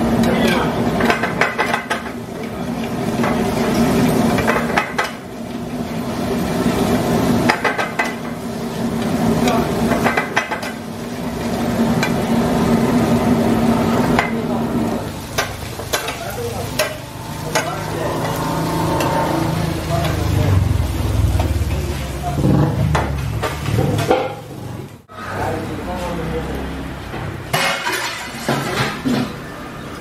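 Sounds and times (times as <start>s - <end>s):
food sizzling in a frying pan: 0.0s - 24.6s
steady low hum: 15.1s - 22.3s
metal spatula scraping a pan: 15.6s - 20.6s.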